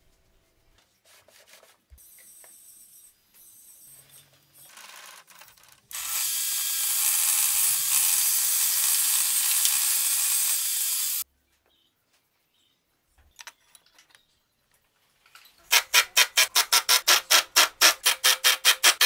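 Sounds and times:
table saw cutting plywood: 5.9s - 11.2s.

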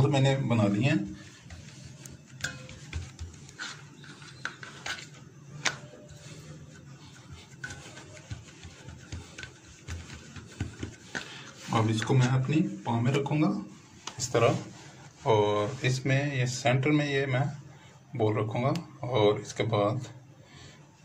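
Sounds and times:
hands patting dough on tray: 0.1s - 13.4s.

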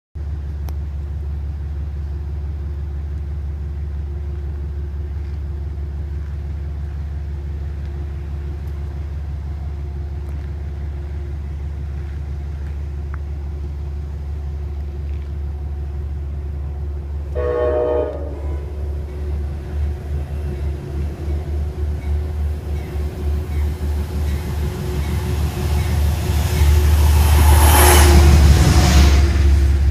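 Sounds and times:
steady low rumble: 0.2s - 29.9s
train horn: 17.3s - 19.4s, 24.6s - 29.9s.

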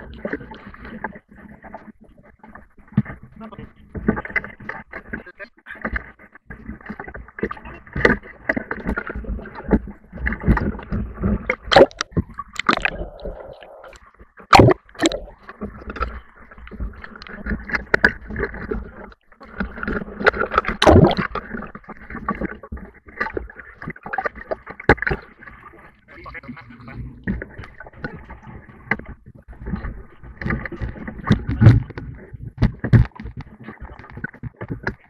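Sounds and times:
muffled underwater gurgling: 3.2s - 35.0s
swimmer splashing: 11.6s - 15.5s, 20.7s - 21.4s
rushing river water: 11.7s - 21.4s.

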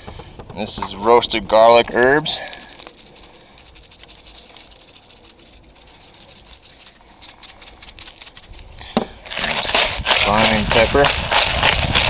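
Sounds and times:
spice grinder grinding: 1.5s - 12.0s.

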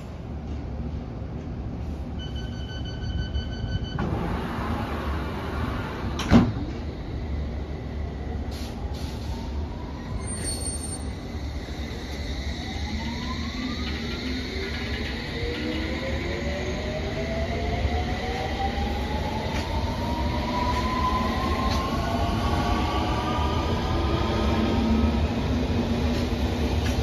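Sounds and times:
low train rumble: 0.0s - 27.0s
door warning tone: 2.2s - 4.3s.

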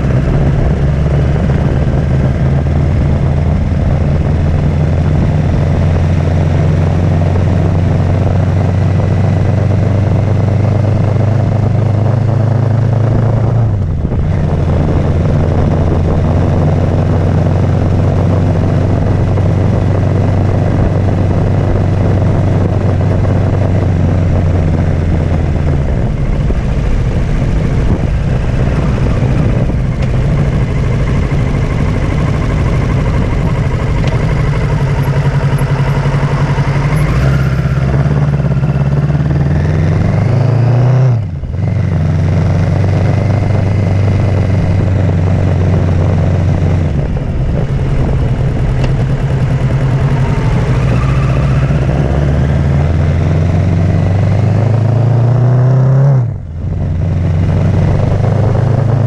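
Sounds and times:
motorcycle engine running: 0.0s - 59.0s
wind and road noise: 0.0s - 59.0s
rough unsteady hum: 12.7s - 59.0s.

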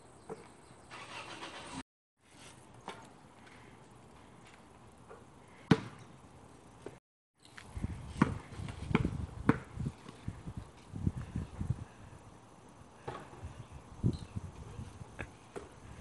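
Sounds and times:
basketball bouncing on asphalt: 5.0s - 6.2s, 7.8s - 10.3s, 13.0s - 13.4s.

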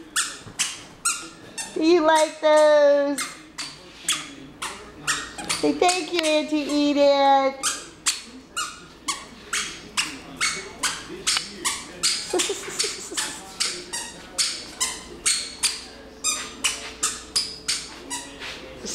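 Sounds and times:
squeaky shoes squeaking: 0.0s - 7.0s, 7.6s - 18.8s.

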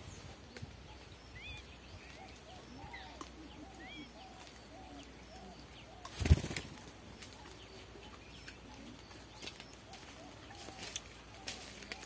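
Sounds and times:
faint bird chirps: 0.0s - 12.0s
bird wings fluttering: 6.0s - 7.6s.

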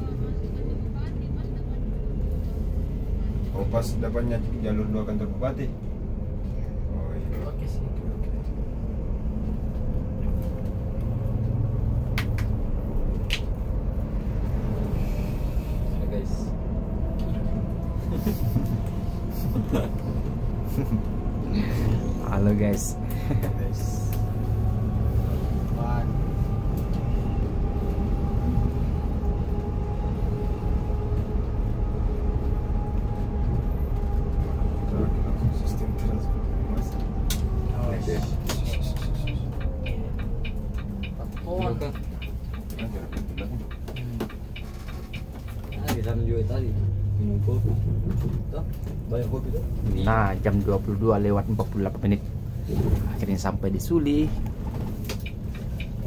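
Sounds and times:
bus engine and road rumble: 0.0s - 56.0s.

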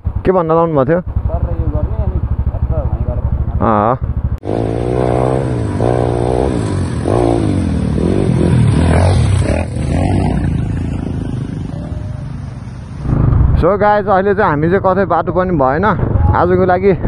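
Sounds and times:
motorcycle engine revving: 0.0s - 16.6s.

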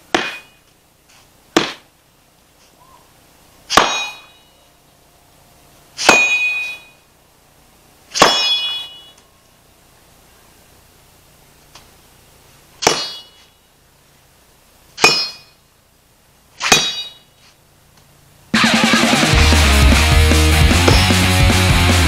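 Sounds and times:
machete knocking: 0.1s - 0.5s, 12.8s - 13.4s, 20.9s - 21.2s
machete blade clanging and ringing: 0.1s - 0.7s, 3.7s - 4.6s, 6.0s - 7.0s, 8.2s - 9.2s, 12.8s - 13.6s, 15.0s - 15.6s, 16.6s - 17.4s, 20.9s - 21.2s.

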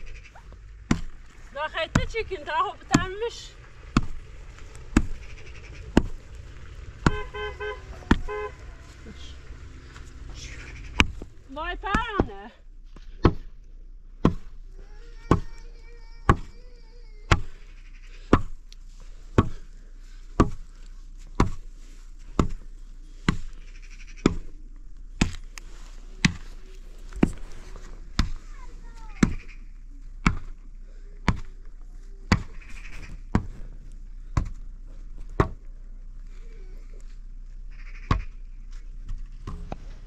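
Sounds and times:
sharp knocks: 1.8s - 4.3s, 4.9s - 12.4s
faint animal calls: 3.6s - 11.1s, 17.5s - 18.3s, 23.6s - 24.7s, 28.4s - 30.0s, 32.5s - 33.7s, 37.6s - 38.7s.

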